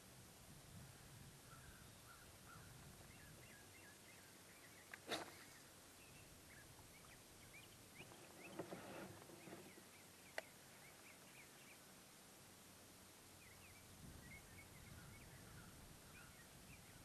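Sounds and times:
distant birds chirping: 1.4 - 12.1, 13.2 - 17.0
soft rustle: 8.0 - 10.2.

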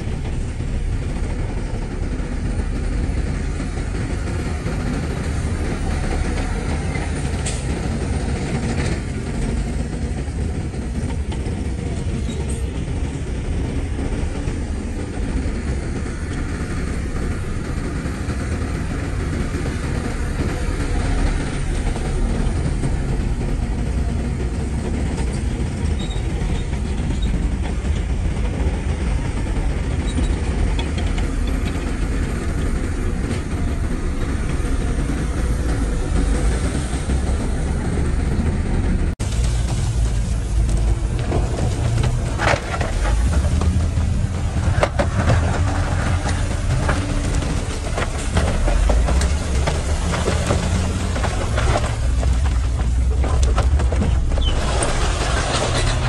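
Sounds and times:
heavy diesel machinery rumbling: 0.0 - 56.0.

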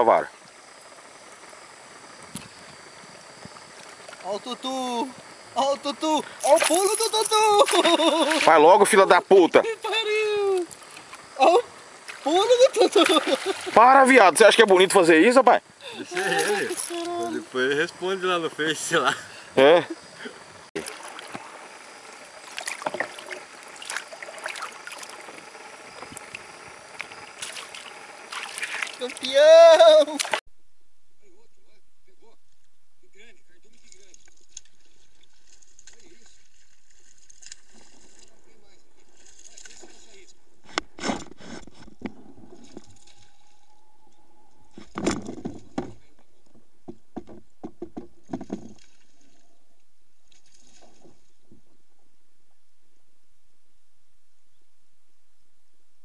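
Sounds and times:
steady hiss: 0.0 - 30.4
thin steady whine: 0.0 - 56.0
small splashes: 6.4 - 8.7, 12.0 - 13.8, 20.8 - 21.6, 22.4 - 25.4, 27.0 - 30.4
water lapping against kayak: 20.8 - 21.6, 22.4 - 26.4, 27.0 - 29.5, 34.2 - 43.8
fish splashing at surface: 27.4 - 29.2
sharp clicks and knocks: 44.8 - 49.0
knocks on kayak: 46.8 - 48.8.

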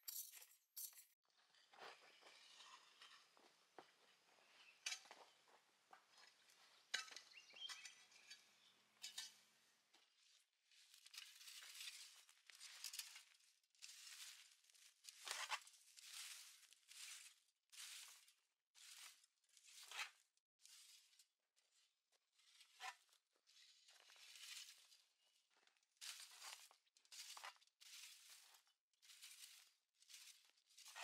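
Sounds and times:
light clicks and scrapes: 0.1 - 3.6
rake swishing over dry soil: 10.8 - 21.2, 26.0 - 31.0.

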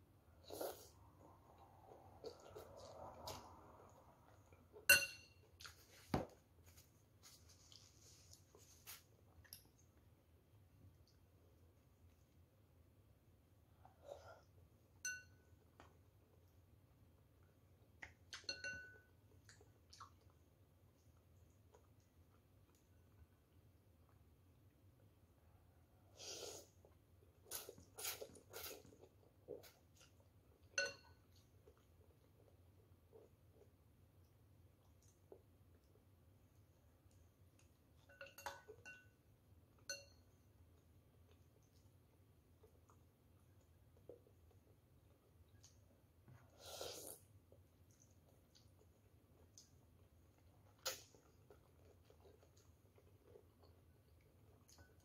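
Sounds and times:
person slurping noodles: 0.4 - 1.1, 26.2 - 26.8, 46.5 - 47.2
metal spoon clinking on bowl: 4.9 - 5.5, 15.0 - 15.5, 18.4 - 19.1, 30.8 - 31.3, 38.0 - 39.2, 39.8 - 40.3
noodles being slurped: 46.4 - 47.3.

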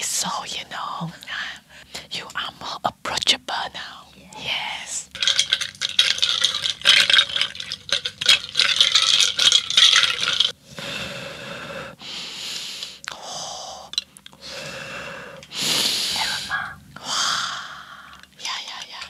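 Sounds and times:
muddler grinding in a glass: 5.0 - 10.6
breathy breaths close to microphone: 10.6 - 18.2.

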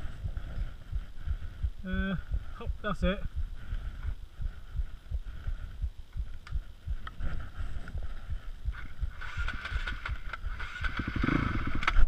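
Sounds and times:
wind buffeting microphone: 0.0 - 12.0
motorcycle engine running: 8.3 - 12.0.

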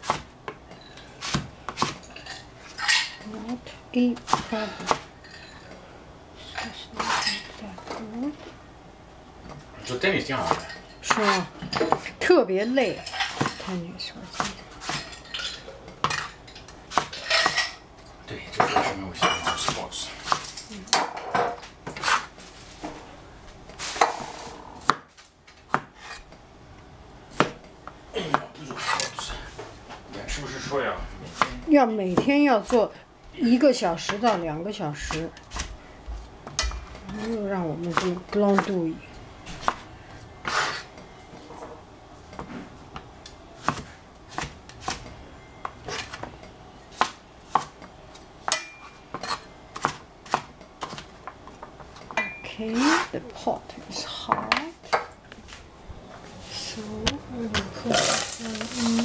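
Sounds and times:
cleaver chopping on cutting board: 1.2 - 2.0, 27.4 - 27.6.

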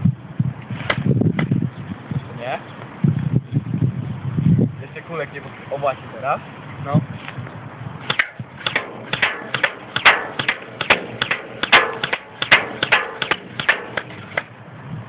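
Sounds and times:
airsoft rifle shots clicking: 8.1 - 14.5.

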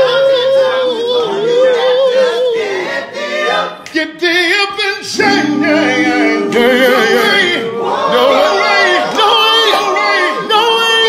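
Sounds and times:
male group singing a cappella: 0.0 - 11.0.

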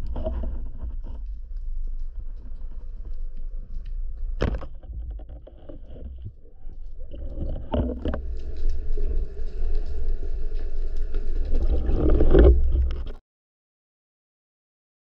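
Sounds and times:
water rushing over camera: 2.1 - 13.2.

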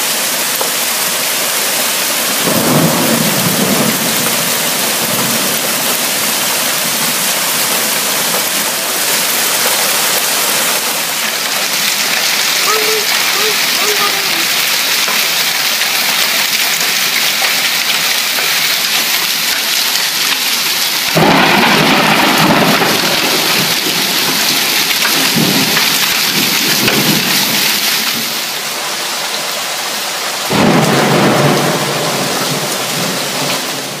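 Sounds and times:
hail and rain on pavement: 0.0 - 34.0
deep thunder rumble: 2.4 - 8.4, 21.1 - 28.3, 30.5 - 34.0.

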